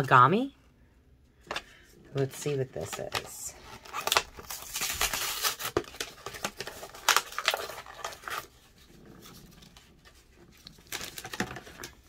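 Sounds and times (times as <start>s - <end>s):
packaging tearing and crinkling: 3.7s - 8.6s, 10.5s - 12.0s.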